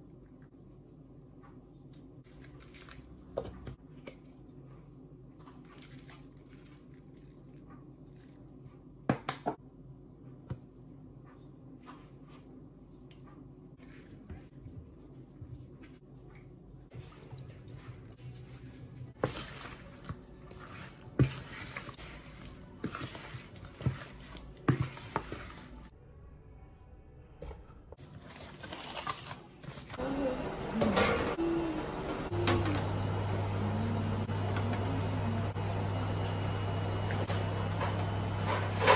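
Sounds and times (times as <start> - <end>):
wet squelching of stirred chicken: 13.8 - 25.9.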